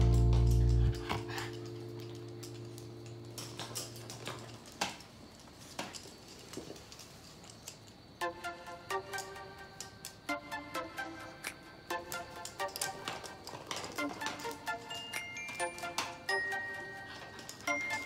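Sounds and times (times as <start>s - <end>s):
music: 0.0s - 4.7s, 8.2s - 18.0s
dog claws clicking on wooden floor: 3.3s - 8.0s, 12.1s - 16.1s.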